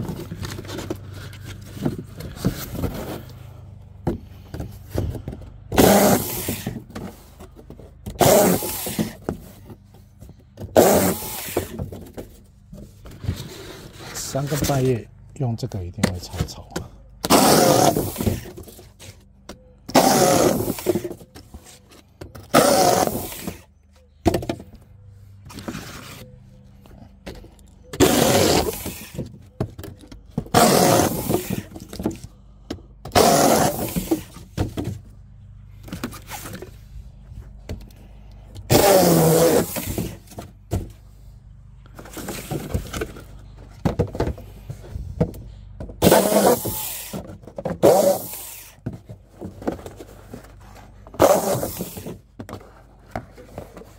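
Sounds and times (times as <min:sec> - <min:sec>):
power tool cutting cardboard: 0:05.7 - 0:07.2, 0:08.0 - 0:09.6, 0:10.6 - 0:12.0, 0:17.2 - 0:19.2, 0:19.8 - 0:21.4, 0:22.3 - 0:23.7, 0:27.9 - 0:32.2, 0:33.0 - 0:34.9, 0:38.6 - 0:40.9, 0:46.0 - 0:49.0, 0:51.0 - 0:52.2.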